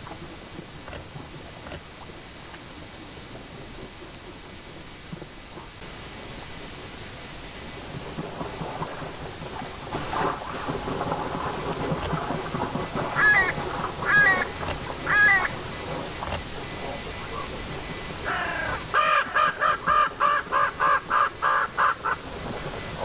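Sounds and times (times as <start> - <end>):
steady hiss: 0.0 - 23.0
crows cawing: 13.1 - 15.5, 18.2 - 22.3.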